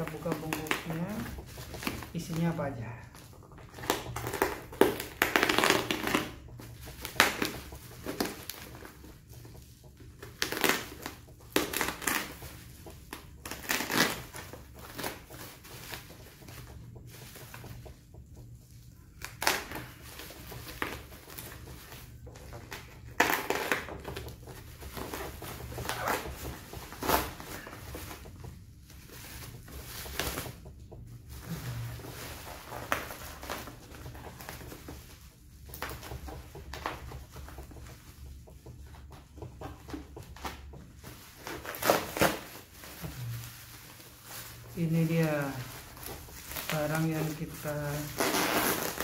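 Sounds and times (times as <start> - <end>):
bubble wrap crinkling and rustling: 0.0 - 49.0
box cutter slitting bubble wrap: 3.8 - 8.9, 10.2 - 12.5, 13.1 - 16.2, 22.8 - 28.3, 41.3 - 43.4, 45.1 - 49.0.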